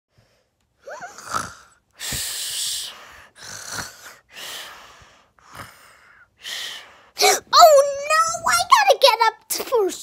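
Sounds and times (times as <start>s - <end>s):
person breathing heavily: 0.1s - 7.5s.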